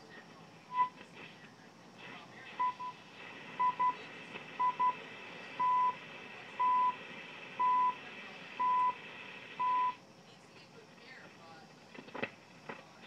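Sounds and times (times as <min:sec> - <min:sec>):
receiver static: 0:00.0 - 0:13.0
radio time signal beeps: 0:00.7 - 0:01.0, 0:02.5 - 0:03.0, 0:03.6 - 0:05.0, 0:05.6 - 0:06.0, 0:06.6 - 0:07.0, 0:07.6 - 0:08.0, 0:08.6 - 0:09.0, 0:09.6 - 0:10.0.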